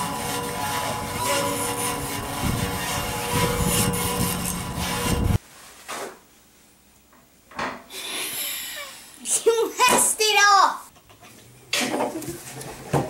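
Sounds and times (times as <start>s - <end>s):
wind on the microphone: 2.2s - 5.4s.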